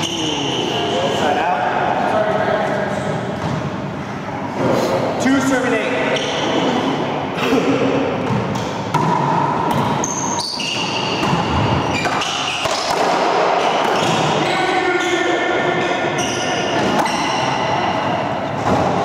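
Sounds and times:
ball smacking racquets and walls: 8.2s - 14.4s, 18.6s - 19.0s.

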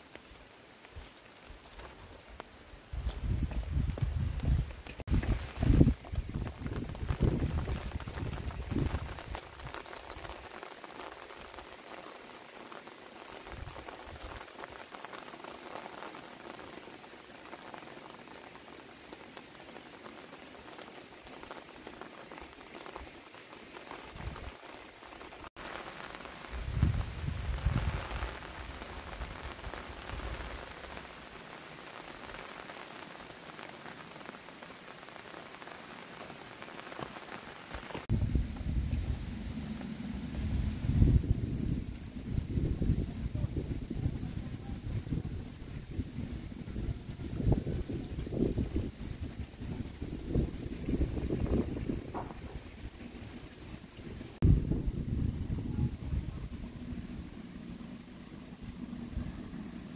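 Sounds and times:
steady rain falling: 0.0s - 59.9s
wind rumble on microphone: 2.8s - 10.3s, 26.4s - 30.7s, 38.1s - 59.9s.

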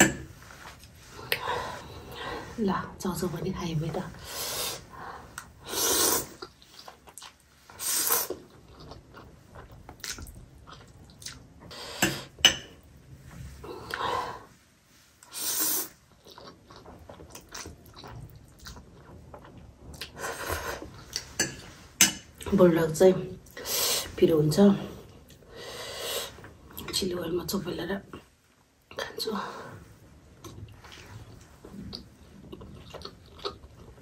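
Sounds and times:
chewing: 6.2s - 11.7s, 16.0s - 21.5s, 30.4s - 34.0s.

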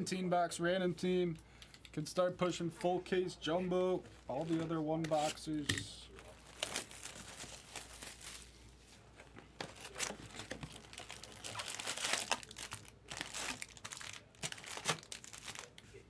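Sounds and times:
plastic wrap crinkling: 6.1s - 16.0s.

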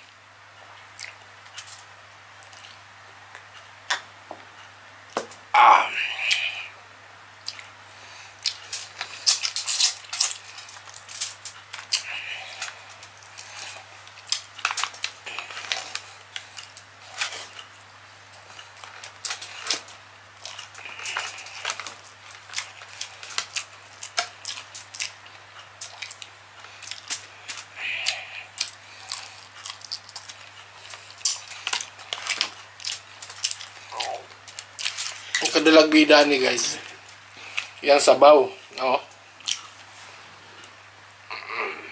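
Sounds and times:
shrimp shell crackling: 8.5s - 17.6s
wet sticky squishes: 18.4s - 37.8s.

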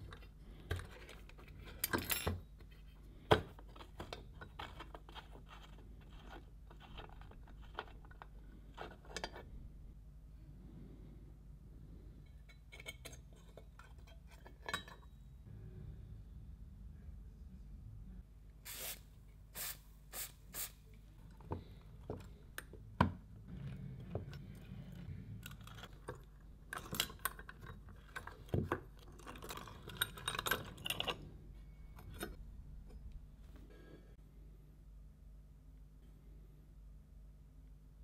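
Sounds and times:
metal parts clicking and knocking: 0.0s - 9.4s, 24.0s - 31.3s.

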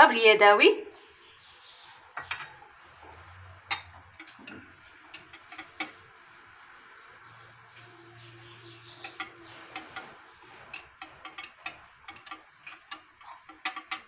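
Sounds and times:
whisk tapping glass bowl: 3.7s - 6.2s, 9.0s - 14.0s.

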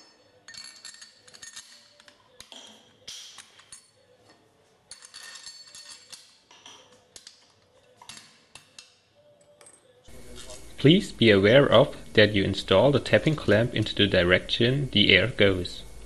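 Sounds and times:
steel nuts clinking on metal: 0.0s - 4.0s, 4.9s - 9.0s.

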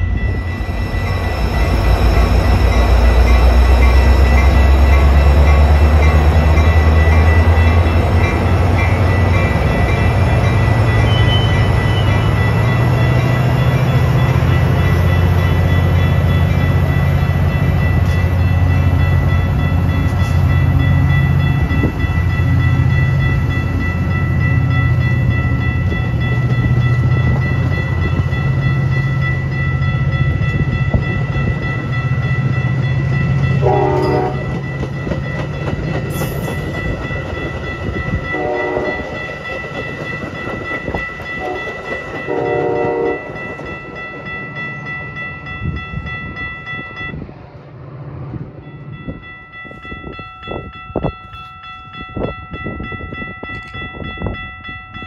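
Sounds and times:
high-pitched ringing tones: 0.0s - 35.0s
diesel locomotive engine drone: 0.0s - 55.0s
distant train horn: 11.0s - 12.6s, 33.6s - 34.6s, 38.3s - 39.2s, 41.4s - 43.4s.

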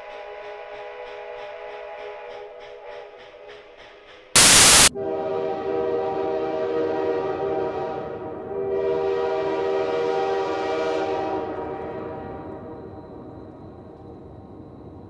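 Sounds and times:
sudden loud burst of noise: 4.4s - 4.9s
locomotive air horn chord: 4.4s - 12.4s.

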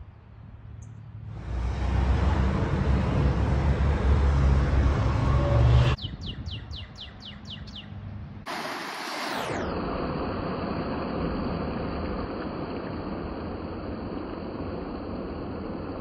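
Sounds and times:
street traffic engine rumble: 0.0s - 8.5s
bird whistling: 6.0s - 7.9s.

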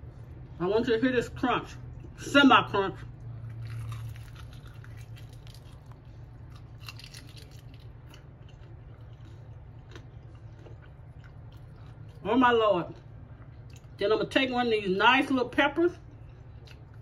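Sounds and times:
crunching fried chicken: 3.3s - 12.2s.

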